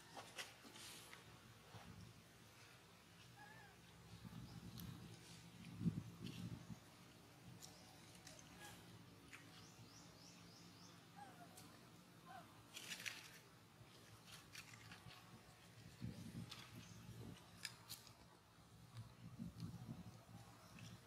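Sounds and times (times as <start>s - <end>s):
faint outdoor ambience: 0.0s - 21.0s
scratchy rustle: 12.7s - 18.3s.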